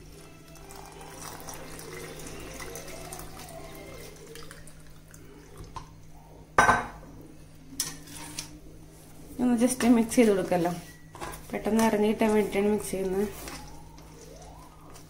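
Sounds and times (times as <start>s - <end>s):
water pouring into a steel jar: 0.0s - 5.8s.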